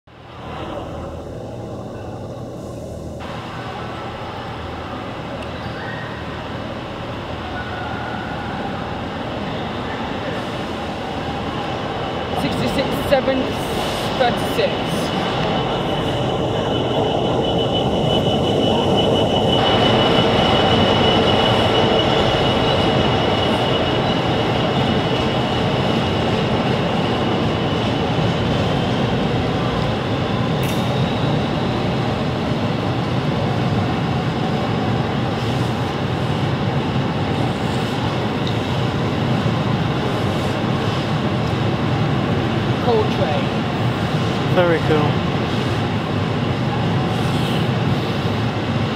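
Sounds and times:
diesel locomotive running past: 0.1s - 48.9s
high wheel squeal: 13.4s - 31.9s.

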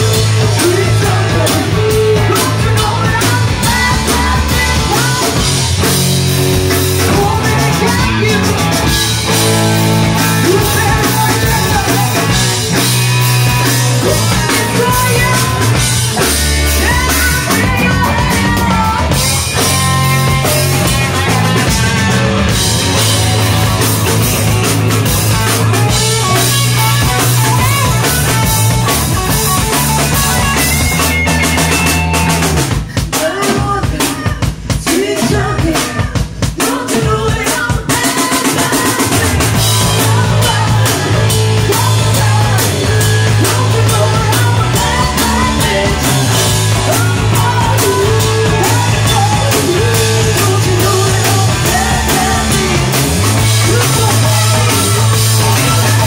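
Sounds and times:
person singing: 0.0s - 6.0s, 6.6s - 23.2s, 25.4s - 56.0s
drums: 0.0s - 56.0s
live rock band: 0.0s - 56.0s.

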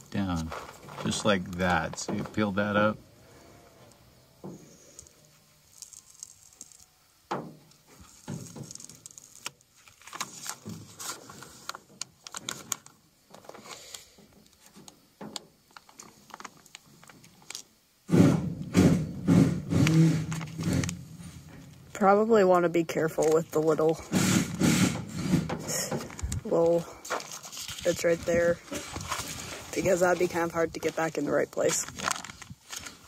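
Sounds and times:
paper crackling and rustling: 7.9s - 13.9s, 15.7s - 17.6s, 23.2s - 23.8s, 26.0s - 33.0s
plastic squeegee scraping: 19.4s - 21.4s, 24.1s - 31.1s.

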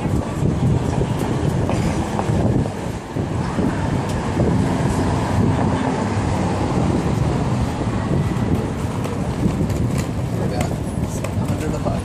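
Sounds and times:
city street traffic: 0.0s - 12.0s
vehicle engine hum: 0.0s - 12.0s
wind rumbling on microphone: 0.0s - 12.0s.

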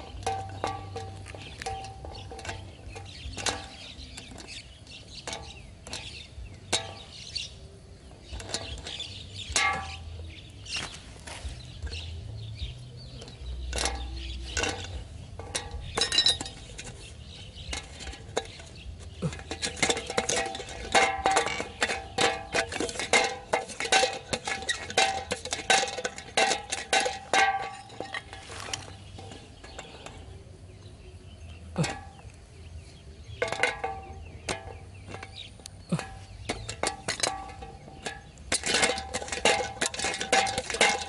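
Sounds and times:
spinning can clattering: 0.0s - 7.5s, 13.2s - 30.3s, 33.4s - 41.0s
pliers and wire clicking on can: 0.0s - 30.9s, 33.2s - 41.0s.

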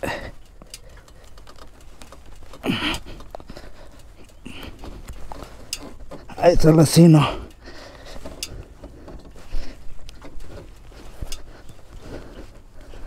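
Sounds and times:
person breathing hard: 0.0s - 6.4s, 7.2s - 13.0s
light clicks and scuffs: 0.2s - 13.0s
person grunting: 2.6s - 3.0s.

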